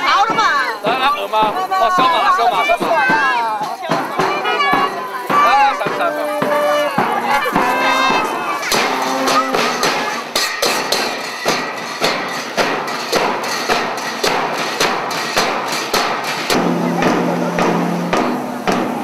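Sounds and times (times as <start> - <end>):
bass drum and cymbals beat: 0.0 - 19.0.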